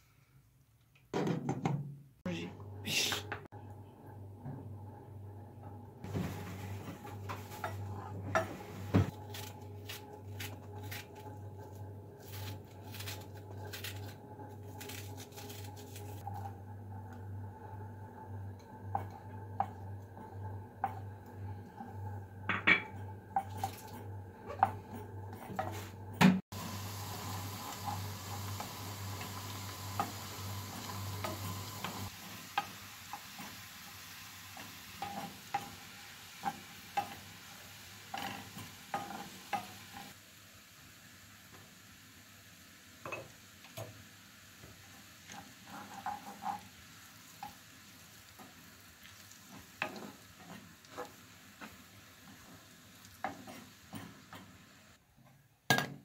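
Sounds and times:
faint sizzling in a pan: 0:06.0 - 0:55.8
wooden spoon scraping a pan: 0:06.1 - 0:09.4, 0:22.8 - 0:26.0, 0:45.3 - 0:46.8, 0:53.2 - 0:54.4.

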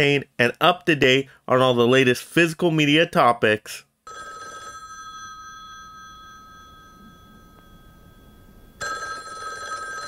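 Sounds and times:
telephone bell ringing: 0:04.1 - 0:10.0.

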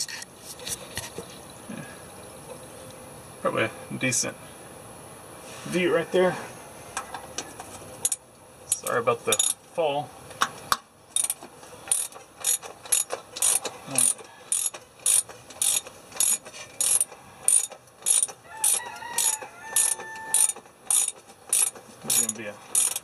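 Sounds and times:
socket ratchet clicking: 0:11.2 - 0:23.0.

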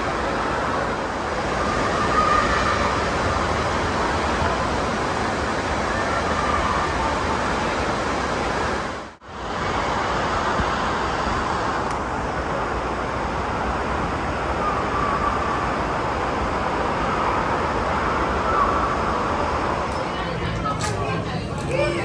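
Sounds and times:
water pouring and spraying: 0:00.0 - 0:20.0
echoing hubbub of voices: 0:17.3 - 0:22.0.

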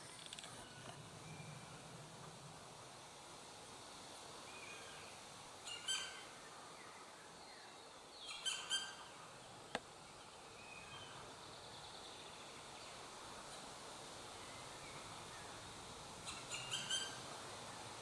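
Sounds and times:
woodpeckers calling: 0:16.2 - 0:17.2.

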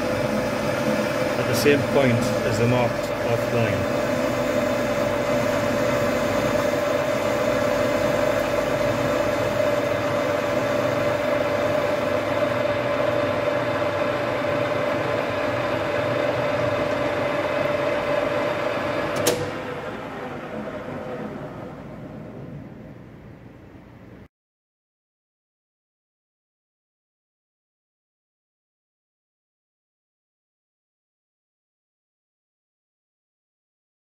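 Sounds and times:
metal lathe whining and humming: 0:00.0 - 0:22.8
lathe switch click: 0:19.1 - 0:19.6.

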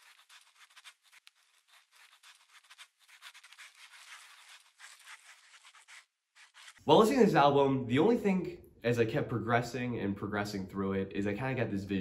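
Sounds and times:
pencil scratching on paper: 0:00.0 - 0:06.8.

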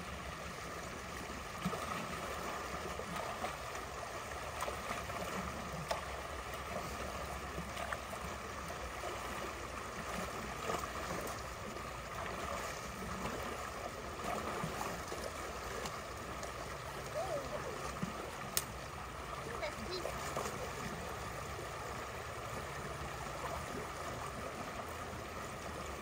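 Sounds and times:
creek water running: 0:00.0 - 0:26.0
faint clicks: 0:18.5 - 0:18.7.

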